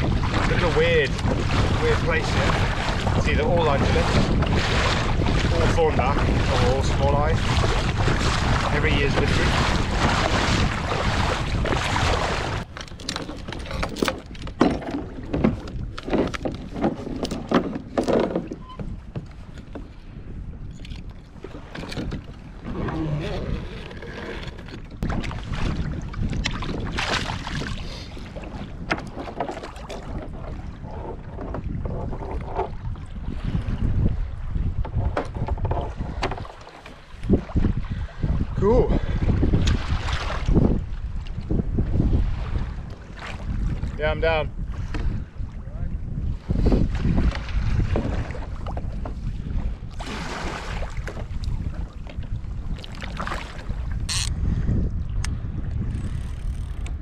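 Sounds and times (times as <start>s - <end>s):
wave washing by: 0.0s - 12.7s
water lapping around kayak: 0.0s - 57.0s
wind buffeting microphone: 0.0s - 57.0s
paddle and gear knocks: 12.6s - 19.9s, 34.8s - 37.0s
sharp knocks and clicks: 34.8s - 36.5s.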